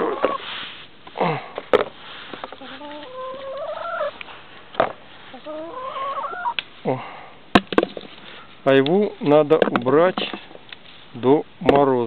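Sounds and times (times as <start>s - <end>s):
hen calling: 0.0s - 0.5s, 2.4s - 4.3s, 5.2s - 6.6s.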